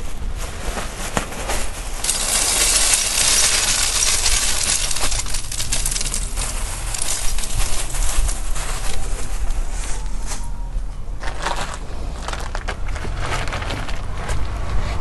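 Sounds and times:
charcoal lumps clattering: 0:00.8 - 0:10.1.

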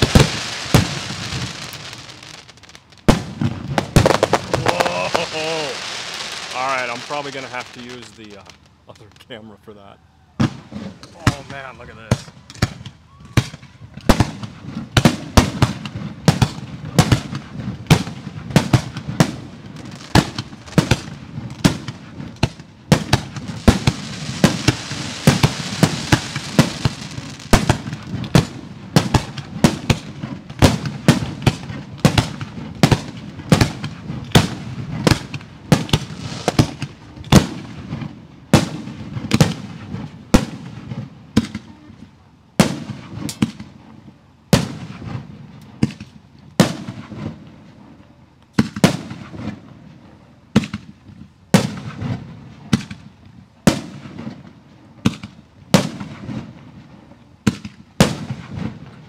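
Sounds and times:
fireworks bangs: 0:00.0 - 0:09.4, 0:10.4 - 0:43.8, 0:44.5 - 0:47.7, 0:48.5 - 0:49.9, 0:50.5 - 0:59.0
hiss: 0:04.6 - 0:07.2.

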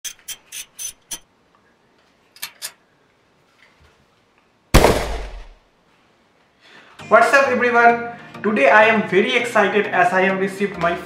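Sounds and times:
sudden loud hit: 0:04.8 - 0:05.6.

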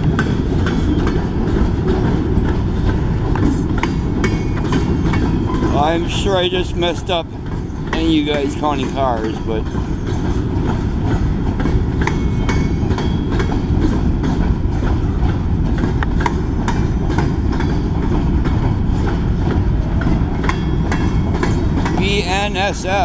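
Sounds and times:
freight train wheels rumbling on rail: 0:00.0 - 0:23.0
wheels clicking and clacking: 0:00.0 - 0:23.0.

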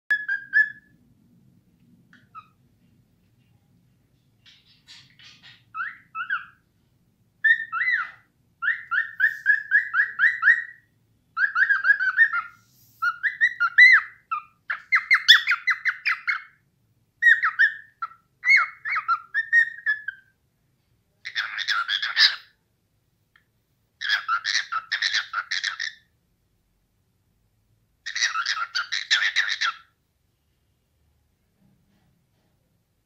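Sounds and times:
cockatiel whistling: 0:00.1 - 0:00.9, 0:07.4 - 0:16.6, 0:17.2 - 0:20.3.

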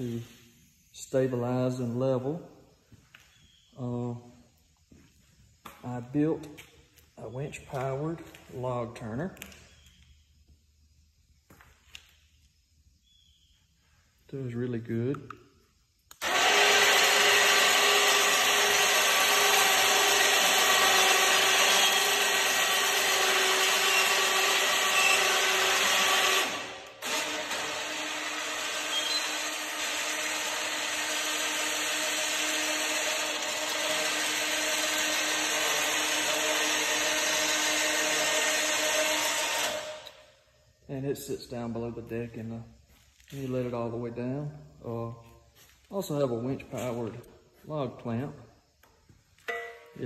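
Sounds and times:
electric winch running: 0:16.1 - 0:40.3.

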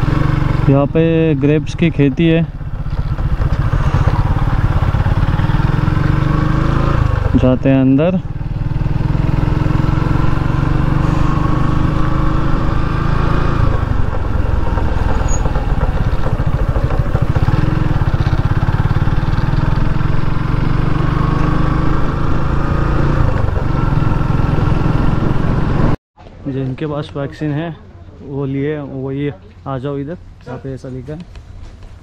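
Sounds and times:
motorcycle engine running: 0:00.0 - 0:26.0
rising engine whine: 0:08.2 - 0:26.0.

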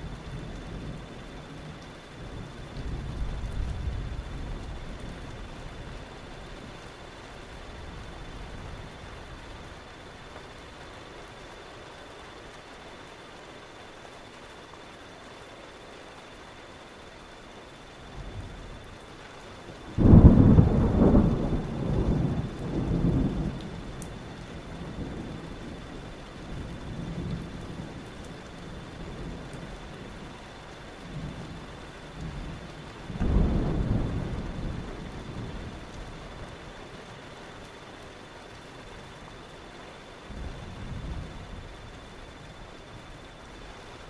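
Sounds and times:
rain hiss: 0:00.0 - 0:44.0
rolling thunder: 0:19.9 - 0:28.1, 0:31.1 - 0:36.4, 0:40.3 - 0:42.6.

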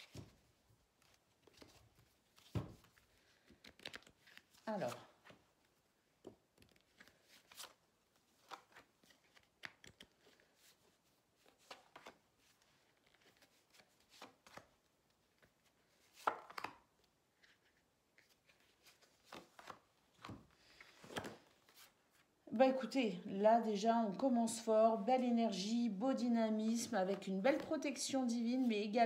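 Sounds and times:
cards tapping and flicking: 0:16.2 - 0:16.8.

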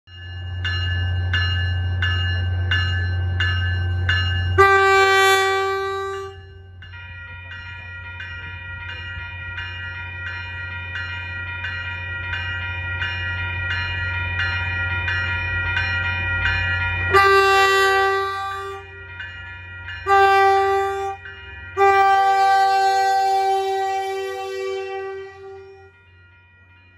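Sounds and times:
bell ringing: 0:00.1 - 0:26.9
train horn blasts: 0:04.6 - 0:06.7, 0:17.1 - 0:19.0, 0:20.1 - 0:25.9.

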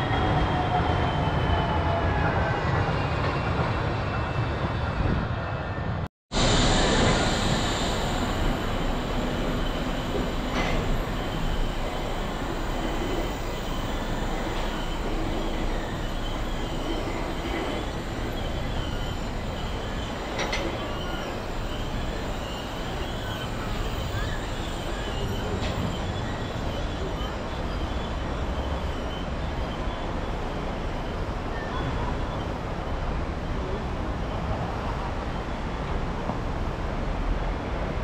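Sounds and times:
high squealing of rail: 0:00.0 - 0:36.7
monorail train rumbling: 0:00.0 - 0:38.0.

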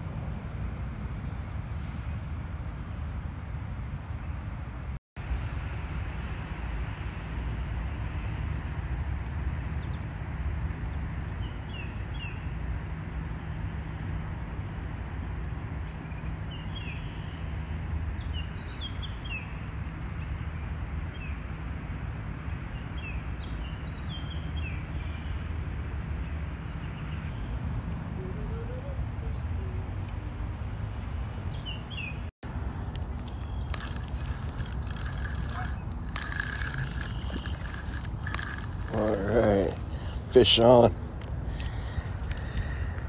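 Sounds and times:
bird chirping: 0:33.1 - 0:40.2.

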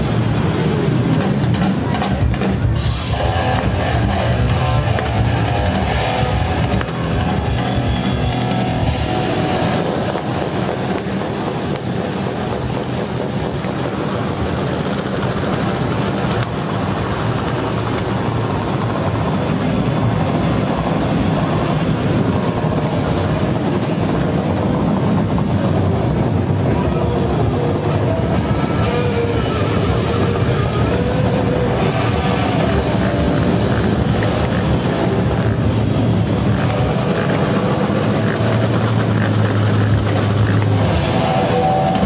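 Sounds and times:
electric guitar: 0:00.0 - 0:42.0
motorcycle engines running: 0:00.0 - 0:42.0
drum kit playing: 0:00.9 - 0:20.8.

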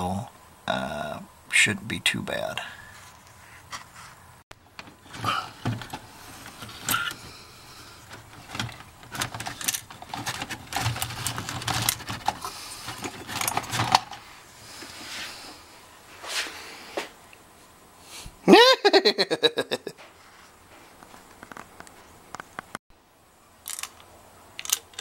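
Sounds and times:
clicks and metallic rattles: 0:08.0 - 0:14.2, 0:23.6 - 0:25.0.

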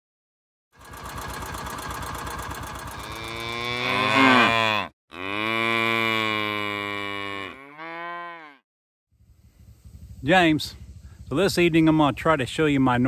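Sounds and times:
small engine puttering: 0:00.8 - 0:04.4
cattle mooing: 0:02.9 - 0:08.6.

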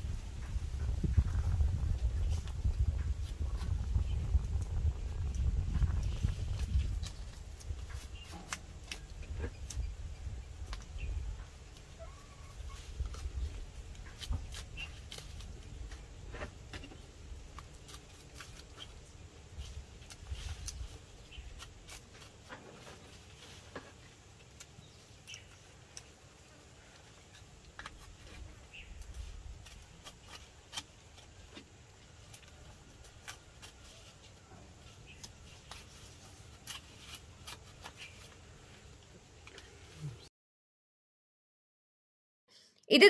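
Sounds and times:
knife cutting bark: 0:06.6 - 0:09.9, 0:13.9 - 0:15.6, 0:17.5 - 0:19.1, 0:20.0 - 0:22.9, 0:27.1 - 0:31.7, 0:32.3 - 0:34.2, 0:35.1 - 0:38.4.

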